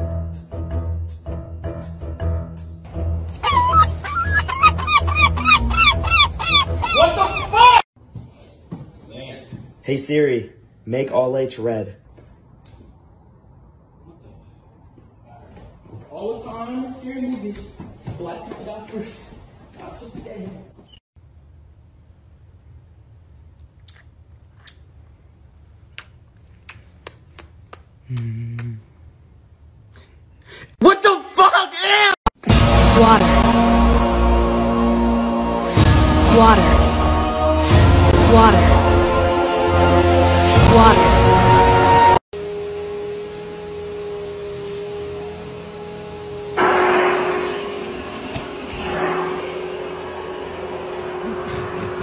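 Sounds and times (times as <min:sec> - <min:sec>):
lip-smacking kisses: 0:25.9 - 0:28.8
vacuum cleaner whining hum: 0:42.4 - 0:52.0.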